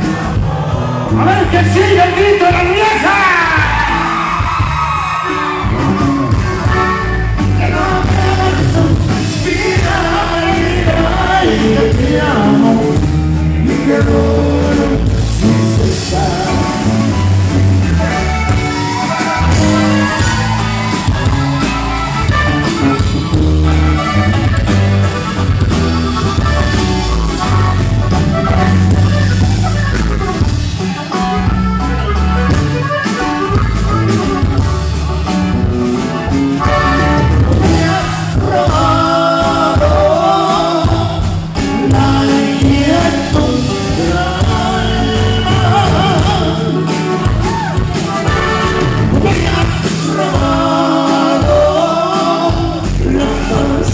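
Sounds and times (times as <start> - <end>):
electric bass: 0.0 - 53.9
guitar: 0.0 - 53.9
button accordion: 6.3 - 13.1, 15.0 - 41.8, 42.5 - 52.9
person singing: 6.5 - 17.4, 37.5 - 47.7, 48.3 - 53.9.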